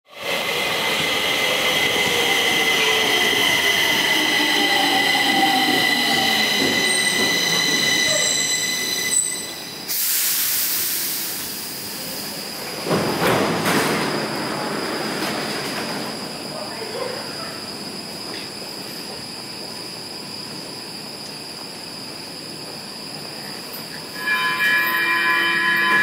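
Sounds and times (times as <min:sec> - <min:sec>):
train wheels squealing: 0:00.4 - 0:12.5, 0:22.6 - 0:26.0
loud brake hiss: 0:06.4 - 0:12.7.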